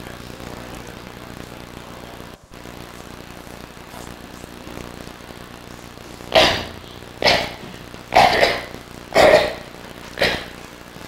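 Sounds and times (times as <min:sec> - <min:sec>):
girl coughing: 0:06.3 - 0:10.6.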